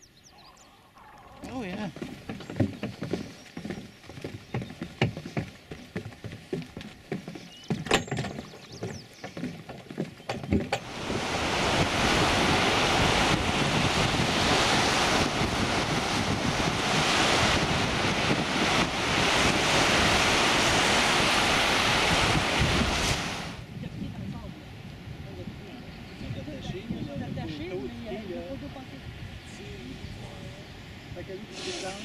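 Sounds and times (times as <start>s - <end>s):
wind on microphone: 1.3s - 32.0s
footsteps on wooden boardwalk: 1.4s - 12.0s
surf breaking on beach: 10.5s - 24.1s.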